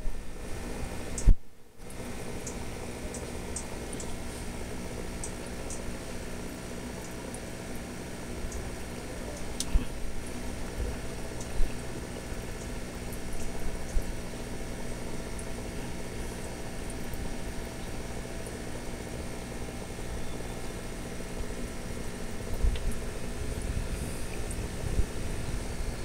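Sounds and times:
aquarium pump humming: 0.0 - 26.0.

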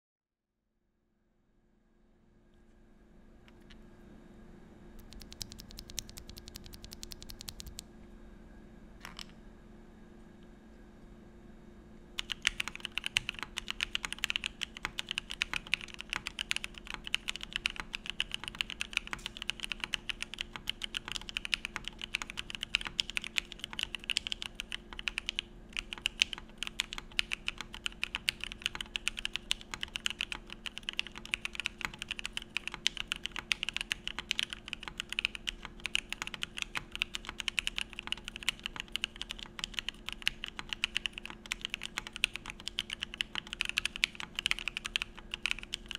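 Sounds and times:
fast mechanical keyboard typing: 5.0 - 7.8, 12.2 - 45.9.

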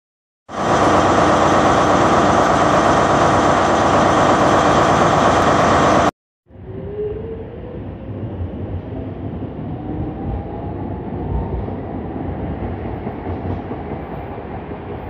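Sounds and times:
loud rushing noise: 0.5 - 6.1.

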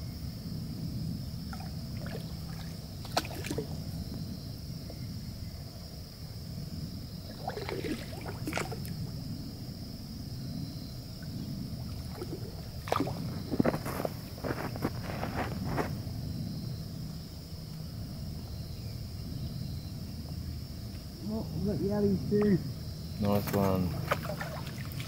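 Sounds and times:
water sloshing and splashing: 1.5 - 4.1, 7.2 - 9.2, 11.2 - 15.8, 23.2 - 25.0.

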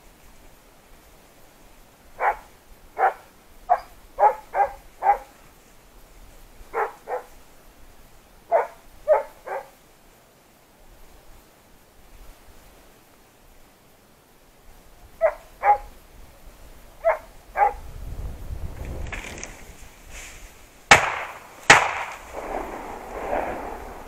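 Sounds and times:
dog barking: 2.2 - 5.4, 6.7 - 7.4, 8.5 - 9.8, 15.2 - 15.9, 17.0 - 17.8.

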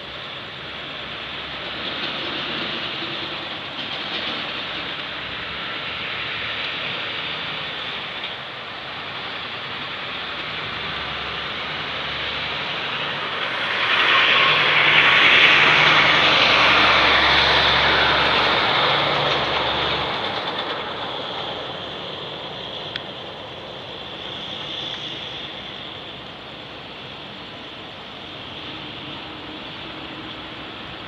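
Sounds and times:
vehicle passing: 9.7 - 23.0.

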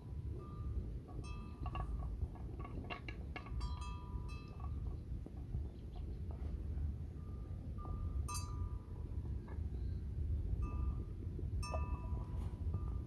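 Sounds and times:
low steady rumble: 0.0 - 13.0
small bells clinking and ringing: 2.8 - 4.9, 7.2 - 9.2, 10.6 - 13.0.

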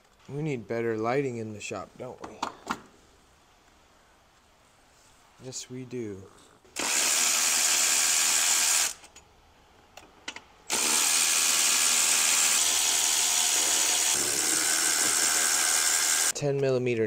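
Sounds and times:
cordless power tool spinning: 6.8 - 9.0, 10.7 - 16.3.

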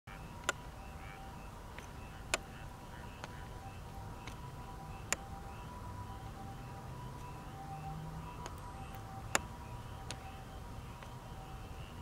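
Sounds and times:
thin steady tones: 0.1 - 12.0
sharp clicks: 0.4 - 0.6.

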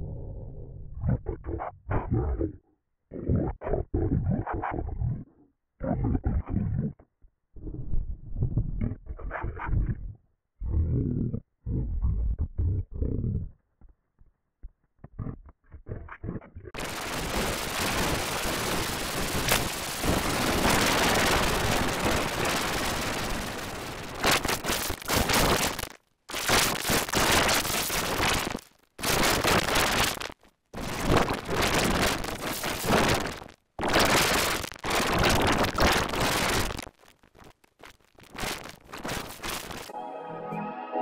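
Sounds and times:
distorted crackling cartoon soundtrack: 15.0 - 41.0.

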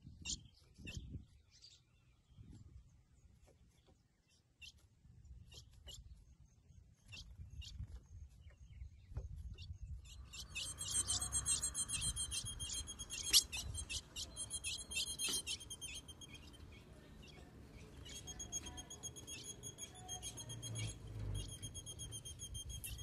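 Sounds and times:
bird chipping and twittering: 0.0 - 23.0.

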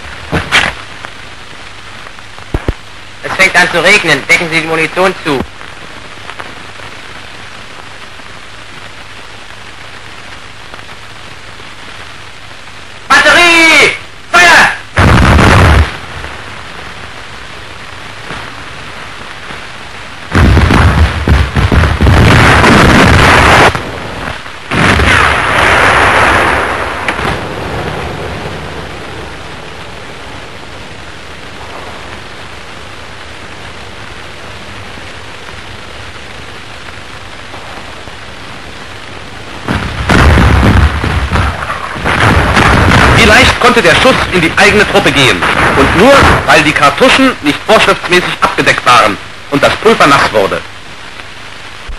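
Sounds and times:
falling rain hiss: 0.0 - 51.9
artillery booms: 15.0 - 16.4, 20.3 - 29.4, 39.6 - 46.7.

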